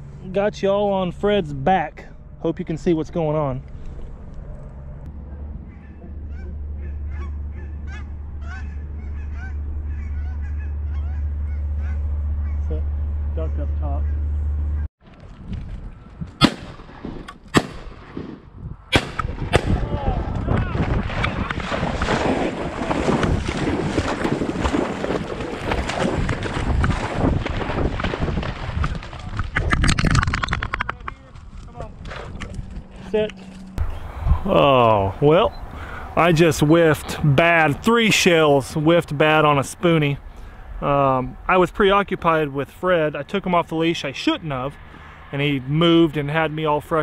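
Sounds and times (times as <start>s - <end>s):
steady low rumble: 0.0s - 22.0s
geese honking: 4.6s - 14.9s
wind noise on microphone: 15.1s - 34.6s
dog splashing through water: 21.6s - 29.2s.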